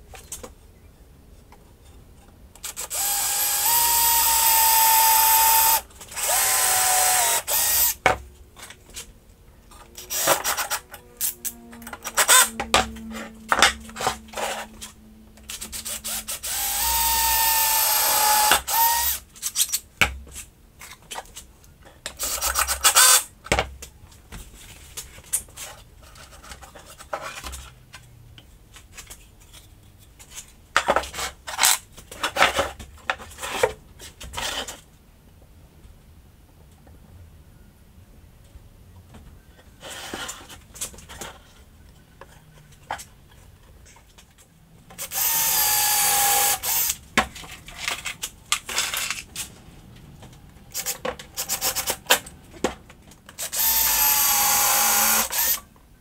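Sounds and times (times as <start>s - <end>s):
drill driving screws into wood: 2.6s - 8.0s, 10.0s - 10.8s, 15.8s - 19.2s, 22.2s - 23.2s, 45.0s - 47.0s, 50.7s - 52.0s, 53.4s - 55.6s.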